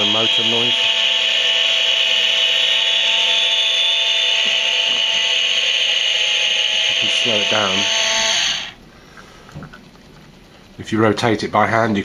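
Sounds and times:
recorded jet sound from speaker: 0.0s - 0.9s, 6.8s - 8.8s
small electric motor whining: 0.0s - 8.8s.

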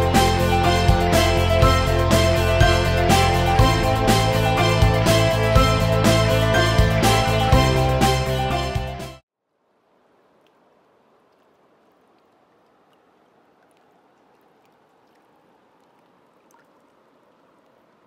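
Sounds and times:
tiny water ticks: 9.7s - 18.0s
water lapping over gravel: 10.2s - 18.0s.

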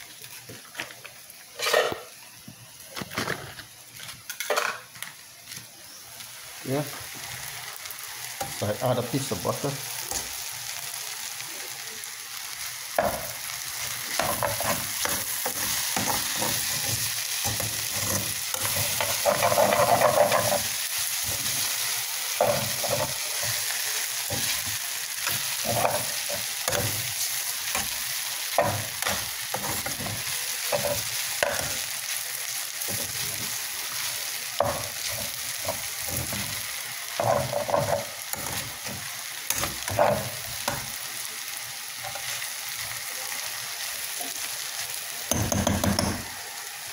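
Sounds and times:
noodles sizzling in a pan: 0.0s - 46.9s
utensil scraping a pan: 14.1s - 20.7s.

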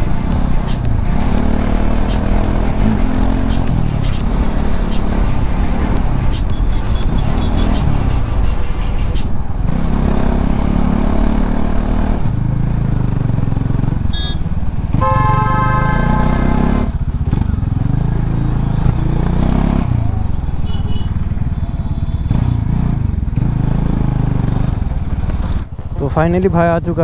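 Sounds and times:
motorcycle engine running: 0.0s - 9.0s, 9.6s - 27.0s
vehicle horn: 6.5s - 7.8s, 14.1s - 16.8s, 20.6s - 22.4s.

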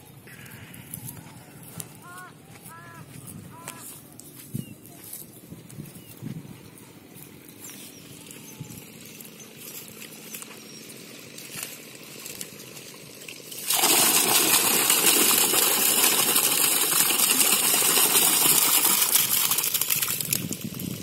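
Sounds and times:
water and fish splashing and gushing: 12.8s - 21.0s.

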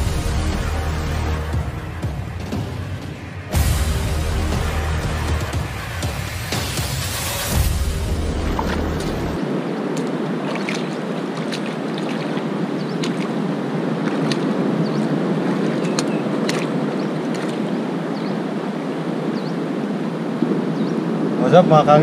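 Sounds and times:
sea surf washing: 0.0s - 22.0s
wind: 0.0s - 22.0s
faint clicks and splashes: 9.9s - 17.8s.

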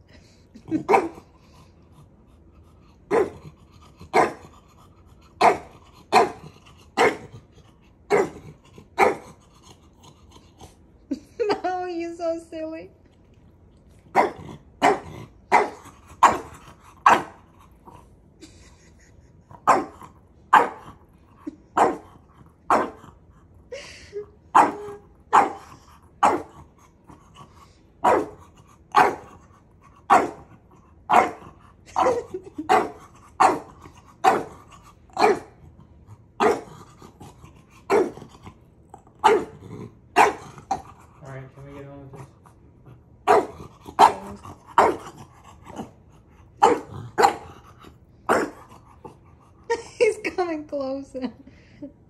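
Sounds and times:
dog barking: 0.9s - 1.2s, 3.1s - 3.4s, 4.1s - 4.4s, 5.4s - 6.4s, 7.0s - 7.3s, 9.0s - 9.3s, 14.1s - 17.4s, 19.6s - 20.8s, 21.8s - 22.1s, 22.7s - 23.0s, 24.5s - 26.5s, 28.0s - 29.3s, 30.1s - 30.4s, 31.1s - 31.4s, 32.0s - 34.6s, 35.2s - 35.6s, 36.4s - 36.7s, 37.9s - 38.2s, 39.2s - 39.5s, 40.2s - 40.5s, 43.2s - 45.0s, 46.6s - 47.5s, 48.3s - 48.6s.

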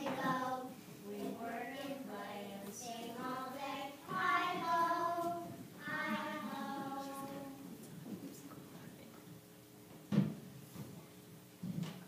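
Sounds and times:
children singing: 0.0s - 7.7s.

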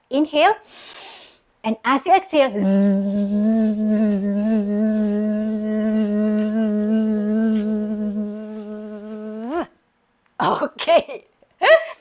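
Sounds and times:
woman humming a buzzing note: 2.6s - 9.7s.

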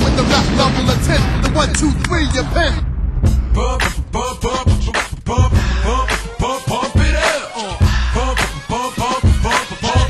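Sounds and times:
bass-heavy hip hop beat: 0.0s - 10.0s
person rapping: 3.4s - 10.0s.

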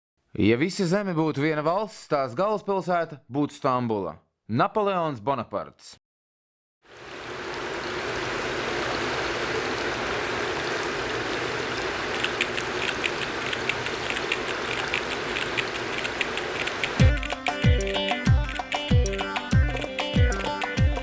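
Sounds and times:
sharp ticks: 12.1s - 20.8s.

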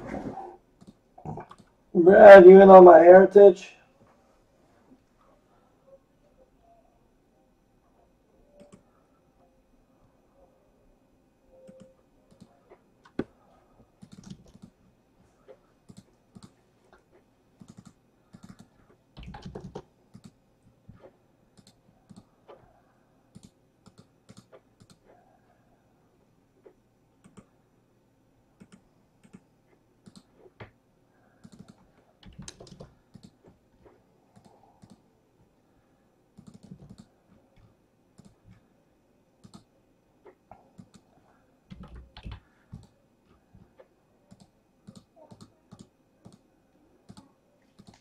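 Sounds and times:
typing on computer keyboard: 11.7s - 13.3s, 14.0s - 14.8s, 15.9s - 16.6s, 17.6s - 20.4s, 21.6s - 22.3s, 23.3s - 25.1s, 27.2s - 27.5s, 28.6s - 29.4s, 30.0s - 30.3s, 31.4s - 33.4s, 34.4s - 35.0s, 36.4s - 37.1s, 38.2s - 38.4s, 39.4s - 39.7s, 40.8s - 41.1s, 41.7s - 43.0s, 44.3s - 46.5s, 47.1s - 48.0s.

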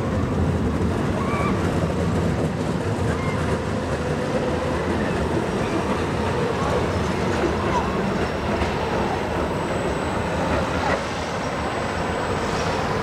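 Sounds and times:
funfair background din: 0.0s - 13.0s
tram wheels rolling on rails: 0.0s - 13.0s.

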